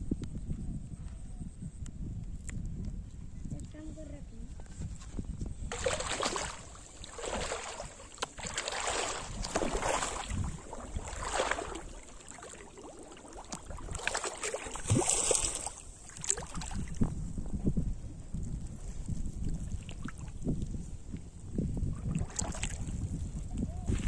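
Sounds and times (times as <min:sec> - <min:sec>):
wind rumble on microphone: 0:00.0 - 0:24.0
water splashing around wading legs: 0:05.7 - 0:17.0, 0:22.0 - 0:22.9.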